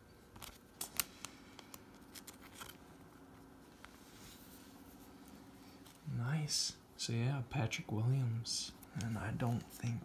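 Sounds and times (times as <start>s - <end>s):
low steady hum: 0.0s - 10.0s
plastic sleeve rustling: 0.3s - 6.1s.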